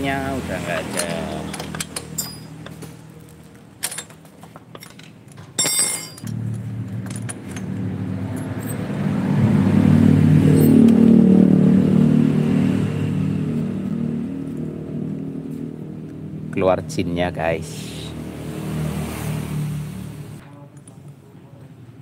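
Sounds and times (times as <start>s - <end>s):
motorcycle engine idling and revving: 0.0s - 4.4s, 5.7s - 20.4s
metallic clatter: 3.8s - 9.0s.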